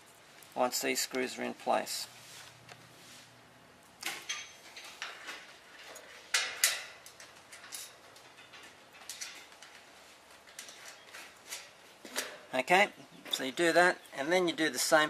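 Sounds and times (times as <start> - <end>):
clicks and knocks of screws and washers: 4.0 - 12.3.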